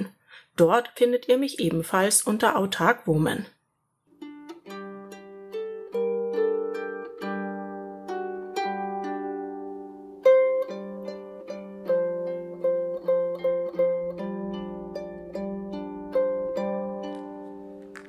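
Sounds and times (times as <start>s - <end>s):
harp plucked notes: 4.1s - 18.0s.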